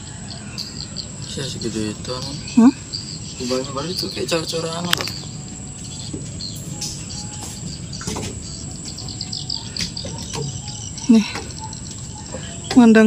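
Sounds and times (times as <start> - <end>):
bird chirps: 0.0 - 13.0
insects droning: 0.0 - 13.0
faint knocks: 4.9 - 13.0.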